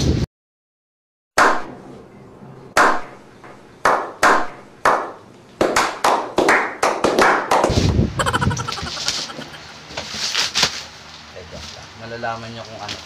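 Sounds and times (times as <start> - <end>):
hand claps with echo: 3.9 - 7.7.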